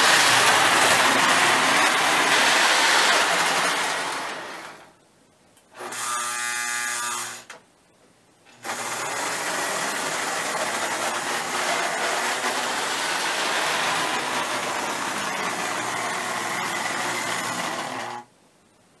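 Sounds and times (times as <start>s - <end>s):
model train motor whir: 0.0s - 4.8s, 8.6s - 18.2s
wheels rolling on steel rails: 0.0s - 5.0s, 9.1s - 18.2s.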